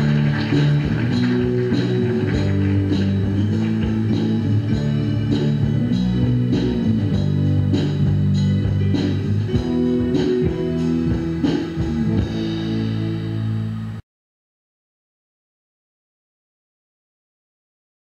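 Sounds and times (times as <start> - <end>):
band playing guitar and bass: 0.0 - 14.0.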